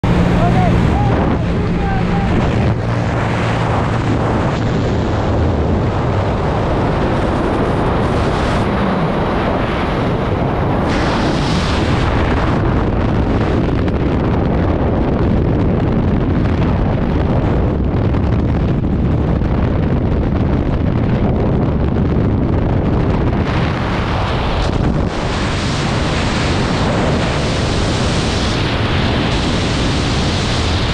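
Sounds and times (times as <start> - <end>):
freefall wind buffeting microphone: 0.0 - 30.9.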